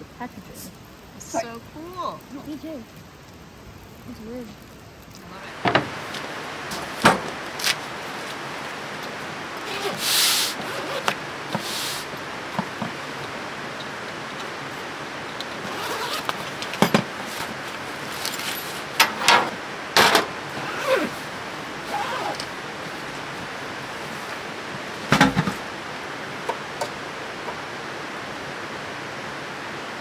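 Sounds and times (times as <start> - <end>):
background hiss: 0.0 - 30.0
bags and fabric rustling: 9.6 - 13.0, 15.3 - 24.4
hard items set down: 16.2 - 17.5, 18.2 - 20.3, 25.0 - 25.6.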